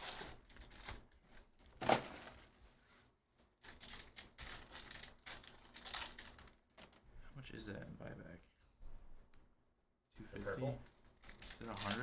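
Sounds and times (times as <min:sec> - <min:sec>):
card pack wrapper rustling: 0:03.6 - 0:07.0, 0:11.0 - 0:12.0
foil wrapper crinkling: 0:03.6 - 0:07.0, 0:11.0 - 0:12.0.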